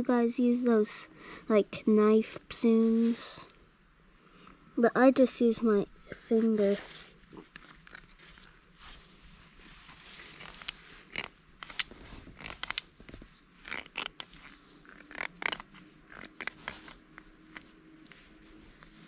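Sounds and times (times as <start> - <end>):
fingernail scraping fish backbone: 10.2 - 17.7.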